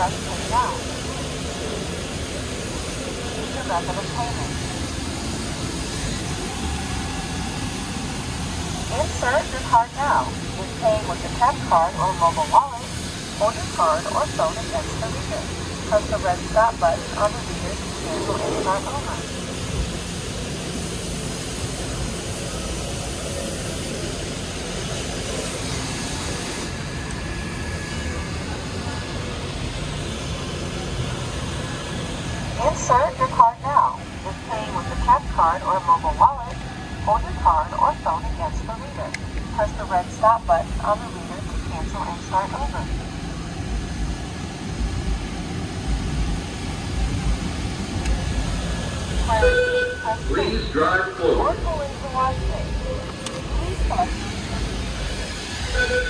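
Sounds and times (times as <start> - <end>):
machinery roaring: 0.0 - 22.1.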